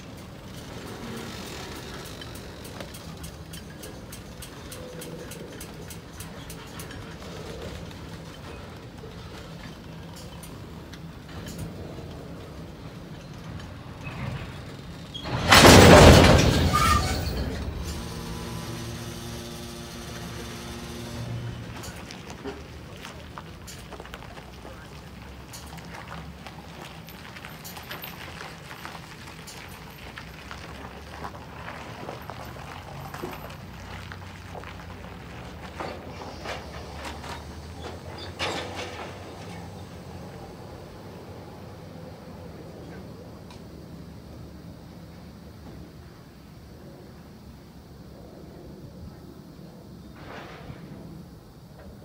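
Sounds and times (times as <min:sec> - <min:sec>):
freight train rumbling past: 0:00.0 - 0:24.8, 0:30.8 - 0:52.0
train wheel clicks: 0:00.0 - 0:35.0.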